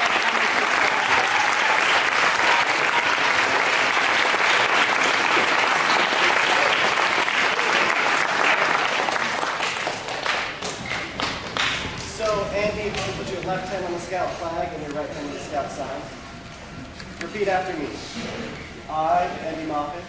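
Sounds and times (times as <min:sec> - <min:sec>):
audience applauding: 0:00.0 - 0:13.2.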